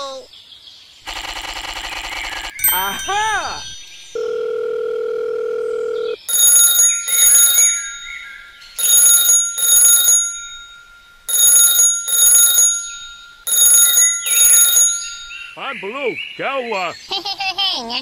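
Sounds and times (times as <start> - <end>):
telephone ringing: 4.1 - 15.4.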